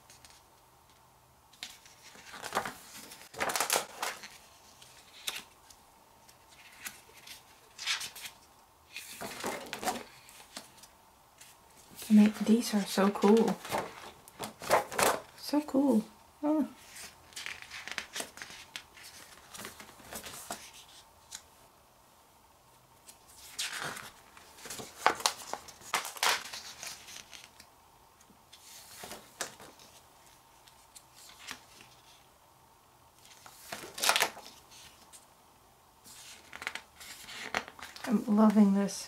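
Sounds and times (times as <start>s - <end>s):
paper pages turning: 1.5s - 15.3s, 16.8s - 21.5s, 23.0s - 27.7s, 28.5s - 32.3s, 33.2s - 35.2s, 36.0s - 38.2s.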